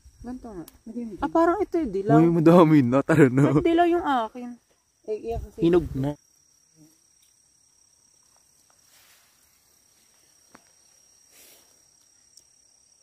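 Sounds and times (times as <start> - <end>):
crickets trilling: 0.0 - 13.0
soft rustles: 8.3 - 11.8.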